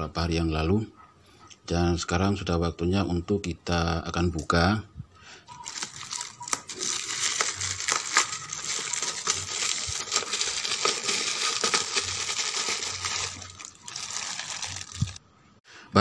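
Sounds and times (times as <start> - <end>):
plastic bag crinkling: 5.5 - 15.2.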